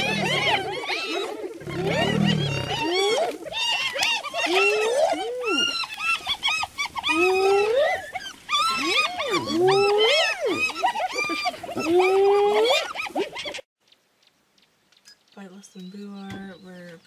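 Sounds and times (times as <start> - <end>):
low growl: 0.0 - 3.3
hyenas squealing and whooping: 0.0 - 13.7.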